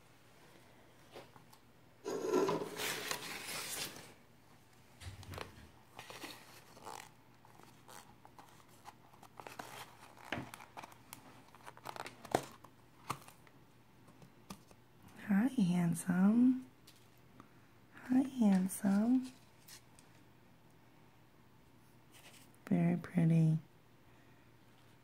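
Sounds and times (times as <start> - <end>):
paper crinkling and tearing: 2.7 - 4.2, 5.9 - 13.4.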